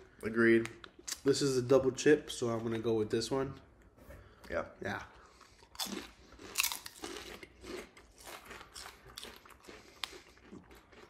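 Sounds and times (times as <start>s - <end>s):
chips being chewed: 5.4s - 11.0s.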